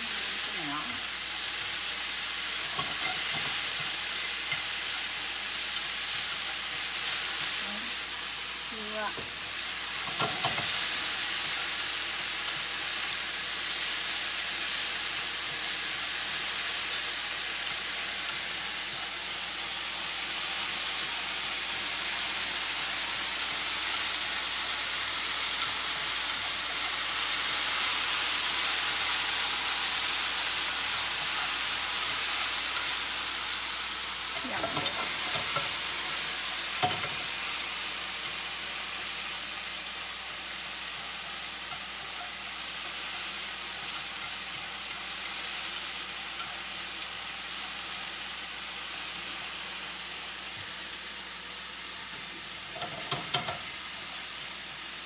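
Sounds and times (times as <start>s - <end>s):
food sizzling in frying pan: 0.0s - 55.0s
chopsticks clicking against pan: 34.6s - 35.8s.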